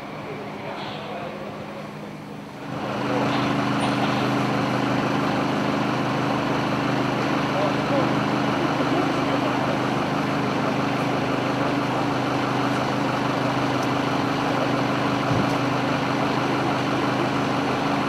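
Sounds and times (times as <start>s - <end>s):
large engine idling: 0.0s - 18.0s.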